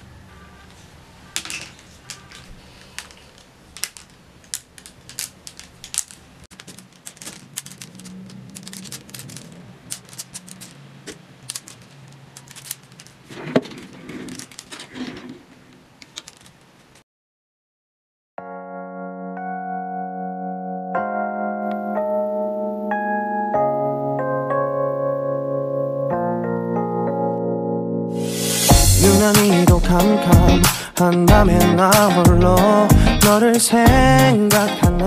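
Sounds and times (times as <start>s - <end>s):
plastic hangers clicking: 1.4s - 15.4s, 16.0s - 16.7s
soft piano music: 18.4s - 29.1s.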